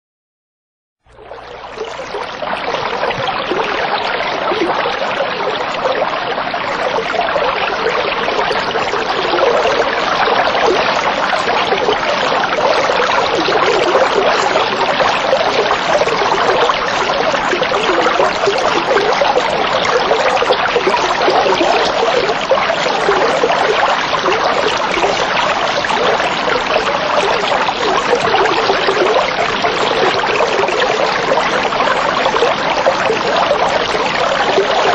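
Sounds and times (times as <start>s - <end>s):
water trickling: 1.1s - 34.9s.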